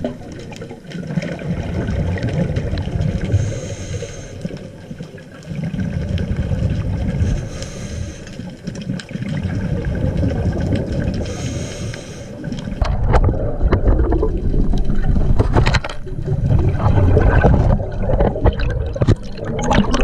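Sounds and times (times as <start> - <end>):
exhaled air bubbling: 0.0 - 20.0
regulator inhale hiss: 3.3 - 4.6, 7.2 - 8.5, 11.2 - 12.5.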